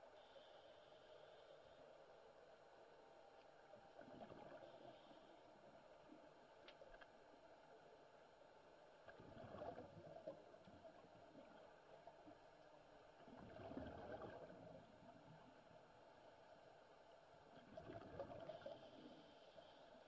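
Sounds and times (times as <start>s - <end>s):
low steady hiss: 0.0s - 20.0s
underwater bubbles from diver exhaling: 9.1s - 10.3s, 13.3s - 14.8s, 17.6s - 19.0s.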